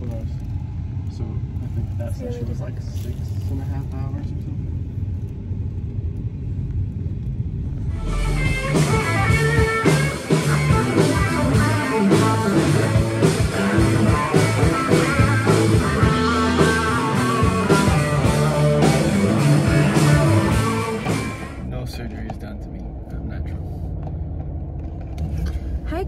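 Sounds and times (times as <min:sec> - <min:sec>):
low rumble: 0:00.0 - 0:26.0
rock music with guitar: 0:07.8 - 0:21.6.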